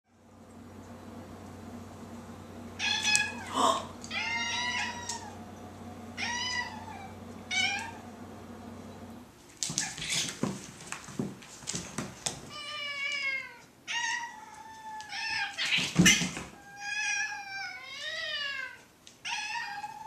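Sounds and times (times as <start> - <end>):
steady low hum: 0.1 - 12.5
cat yowling: 2.8 - 5.4, 6.2 - 8.0, 12.5 - 20.0.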